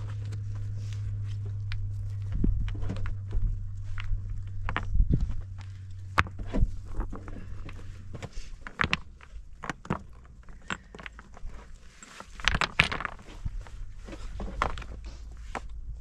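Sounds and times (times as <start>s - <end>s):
stones clacking together: 0.0s - 16.0s.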